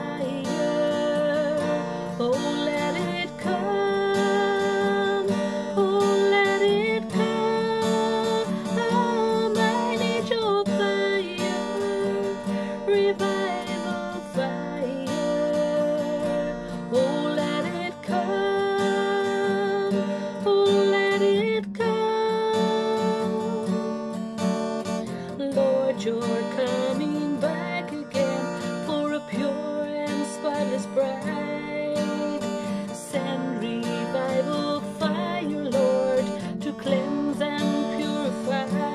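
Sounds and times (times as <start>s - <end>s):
acoustic guitar strumming: 0.0s - 38.9s
woman singing: 0.0s - 38.9s.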